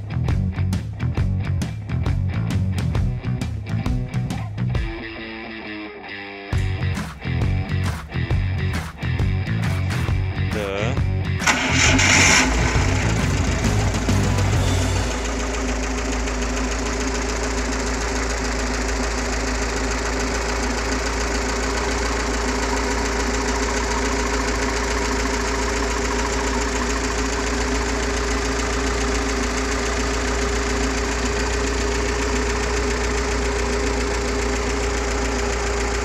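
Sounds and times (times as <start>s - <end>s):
petrol engine idling: 11.4s - 36.0s.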